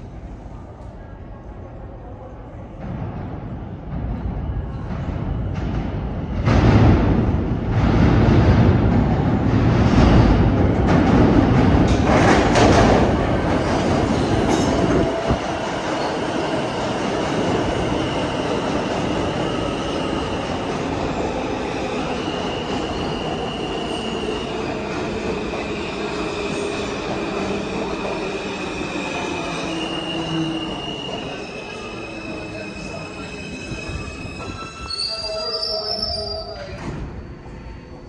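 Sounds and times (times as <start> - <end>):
subway train rumbling: 0.0 - 38.0
train wheels squealing: 28.0 - 38.0.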